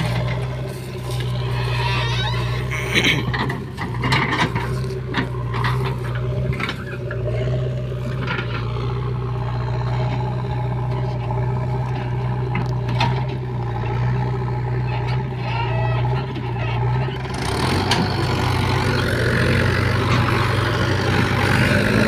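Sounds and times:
knocks and clatter of earth loading: 0:00.0 - 0:15.4, 0:16.0 - 0:22.0
diesel engines droning: 0:00.0 - 0:22.0.

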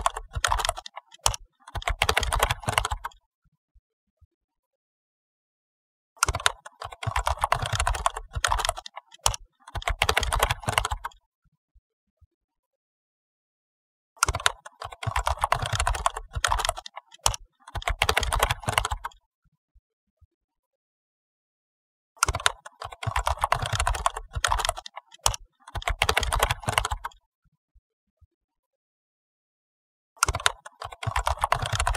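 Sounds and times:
rapid typing keystrokes: 0:00.0 - 0:03.2, 0:06.2 - 0:11.2, 0:14.2 - 0:19.2, 0:22.2 - 0:27.2, 0:30.2 - 0:31.9.

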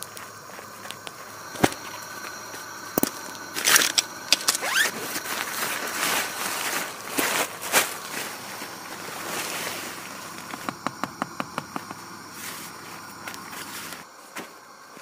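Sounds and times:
nylon fabric rustling: 0:03.6 - 0:10.3.

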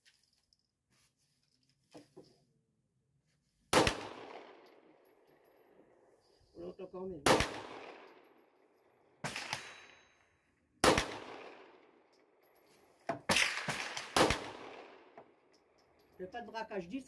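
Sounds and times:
pistol shots with echo: 0:03.7 - 0:04.6, 0:07.2 - 0:08.4, 0:09.2 - 0:10.0, 0:10.8 - 0:12.1, 0:13.3 - 0:15.2.

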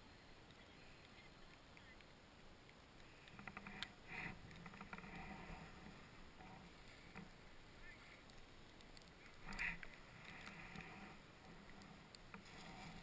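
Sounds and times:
light clicks: 0:08.0 - 0:12.5
snowboard sliding over snow: 0:09.5 - 0:13.0.

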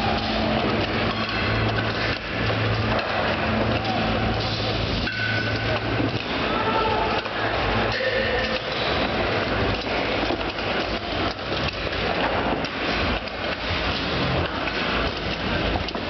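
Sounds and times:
people shouting: 0:03.5 - 0:04.4, 0:06.3 - 0:08.6.

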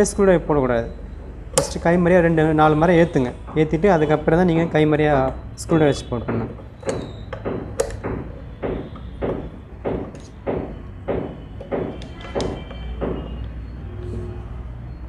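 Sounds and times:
metal knocks and clicks: 0:01.2 - 0:01.9, 0:05.2 - 0:13.6.

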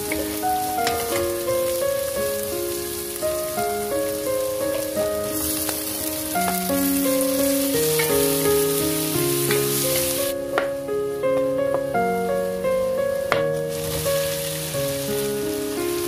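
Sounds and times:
vegetables sizzling in a frying pan: 0:00.0 - 0:10.4, 0:13.6 - 0:16.0
background music: 0:00.0 - 0:16.0.

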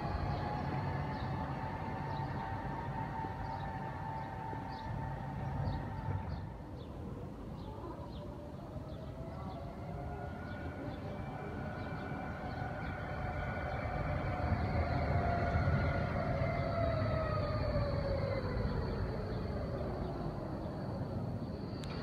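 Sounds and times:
approaching tram whine: 0:00.0 - 0:22.0
tram electric drive whine: 0:00.0 - 0:22.0
tram wheels rumbling on rails: 0:00.0 - 0:22.0.

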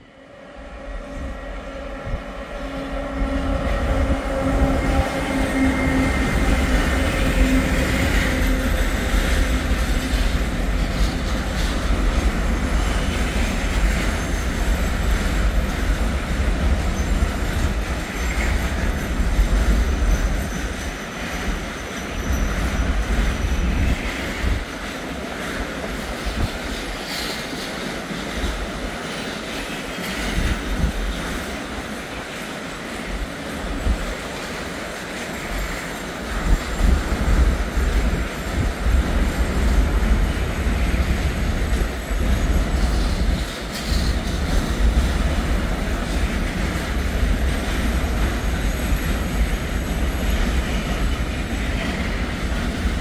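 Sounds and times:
train wheels rumbling on track: 0:00.0 - 0:53.0.

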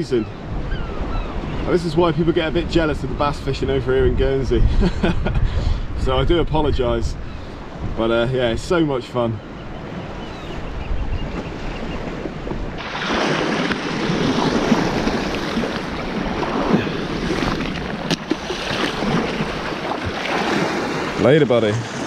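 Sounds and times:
wind rumbling on microphone: 0:00.0 - 0:08.8, 0:09.5 - 0:21.2
surf breaking over rocks: 0:12.8 - 0:22.0.

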